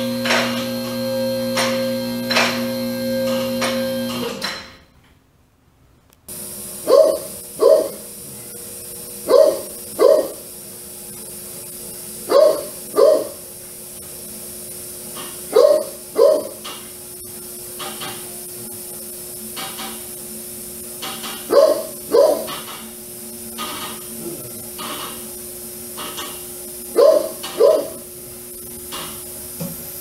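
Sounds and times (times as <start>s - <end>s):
steady hum: 6.3s - 30.0s
dog barking: 6.8s - 8.1s, 9.2s - 10.4s, 12.3s - 13.4s, 15.5s - 16.6s, 21.4s - 22.6s, 26.9s - 28.0s.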